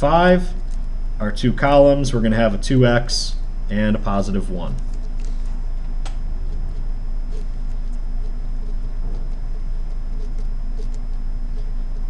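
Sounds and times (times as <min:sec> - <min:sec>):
low electrical hum: 0:00.0 - 0:12.0
marker squeaking on paper: 0:06.4 - 0:11.8.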